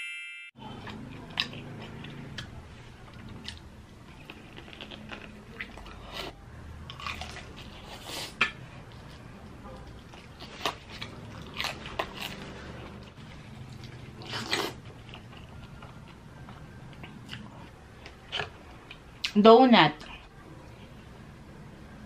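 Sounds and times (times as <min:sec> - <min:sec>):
crunching fried chicken: 0:09.8 - 0:18.7.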